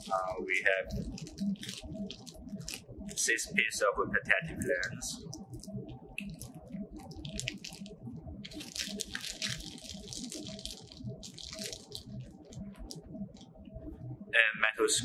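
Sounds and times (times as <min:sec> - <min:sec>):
plastic bag crinkling: 0:00.0 - 0:02.8, 0:06.2 - 0:13.0.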